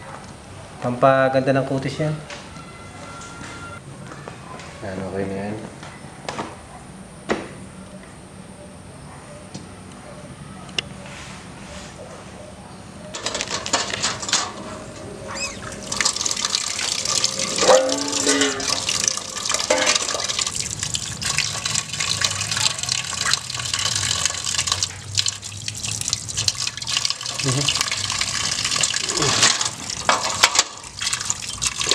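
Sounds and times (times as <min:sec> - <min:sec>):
water pouring into a steel pot: 0:15.3 - 0:31.9.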